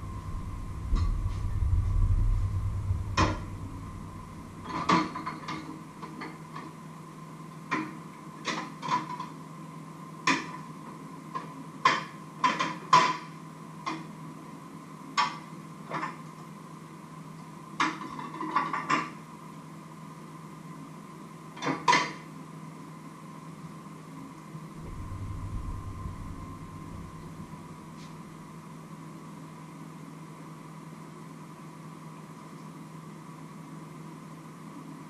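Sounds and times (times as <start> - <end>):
low rumble: 0.0 - 4.9, 24.8 - 28.6
faint steady hum: 0.0 - 35.0.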